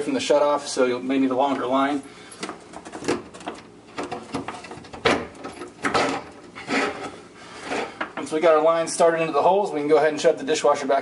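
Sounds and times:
plastic hose scraping wood: 5.8 - 8.0.

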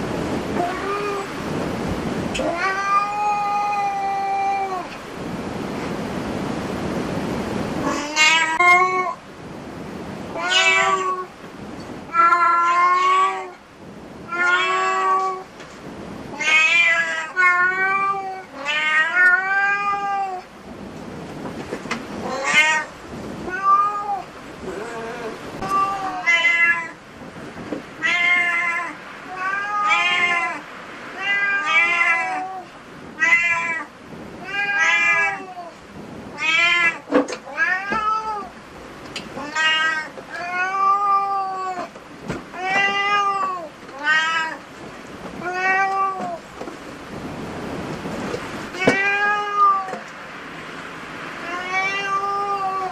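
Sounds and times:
cat meowing: 0.6 - 1.4, 2.3 - 4.9, 7.8 - 9.2, 10.3 - 11.3, 12.1 - 13.6, 14.3 - 15.5, 16.3 - 20.5, 22.2 - 27.0, 28.0 - 38.5, 39.4 - 41.9, 42.5 - 44.6, 45.4 - 46.4, 48.7 - 50.1, 51.4 - 52.9.

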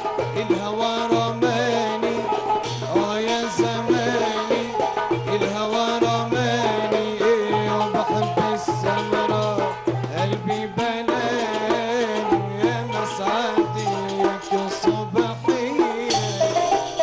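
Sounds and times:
hand percussion: 0.0 - 17.0
oud and qanun playing: 0.0 - 17.0
young man singing: 0.0 - 17.0.

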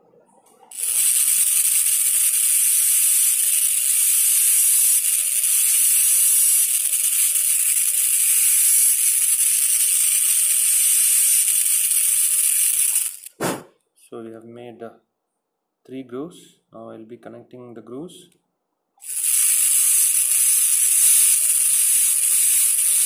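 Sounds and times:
dental drill whining: 0.7 - 13.4, 19.0 - 23.0.

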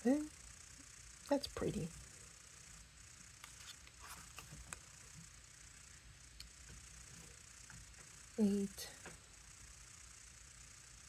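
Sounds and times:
cards tapping and sliding: 3.4 - 4.8.

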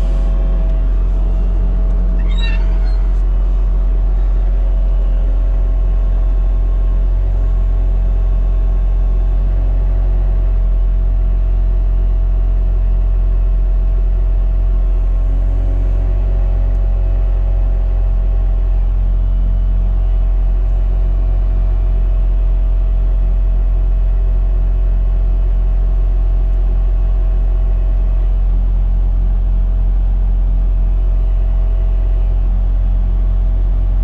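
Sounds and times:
steady whining tone: 0.0 - 8.8
diesel engine running: 0.0 - 34.0.

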